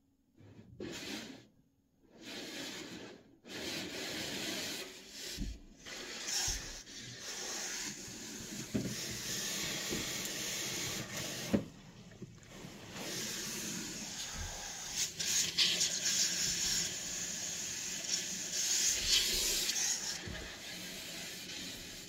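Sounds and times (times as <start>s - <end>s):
water spray hissing on glass: 4.1s - 11.6s, 12.6s - 22.0s.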